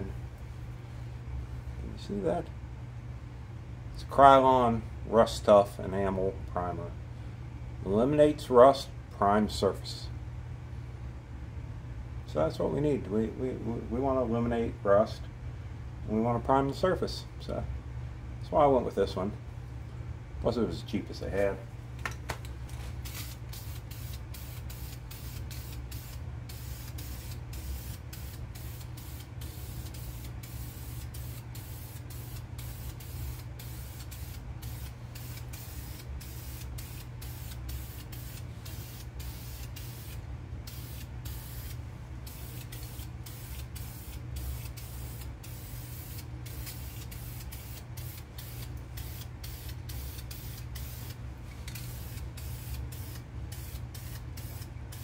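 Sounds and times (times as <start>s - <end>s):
steady low hum: 0.0s - 55.0s
aerosol spray can hissing: 23.0s - 55.0s.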